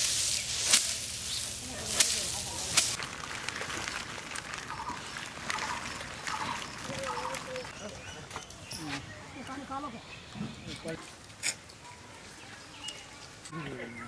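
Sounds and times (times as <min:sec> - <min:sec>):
dry rattle of seed pods: 0:00.0 - 0:09.1.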